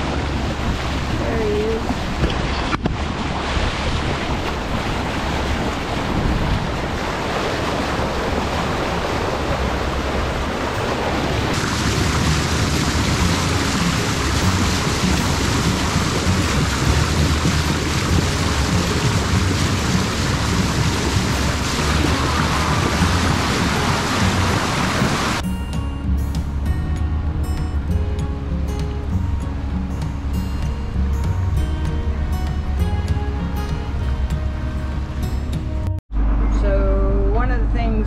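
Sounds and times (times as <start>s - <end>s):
wind buffeting microphone: 0.0s - 25.4s
bow wave rushing along hull: 0.0s - 38.0s.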